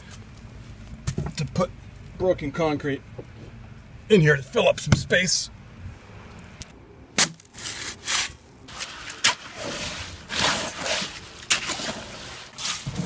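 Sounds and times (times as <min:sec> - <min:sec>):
concrete scraping and crunching: 0:07.2 - 0:13.0
hoe pushing concrete in wheelbarrow: 0:07.6 - 0:13.0.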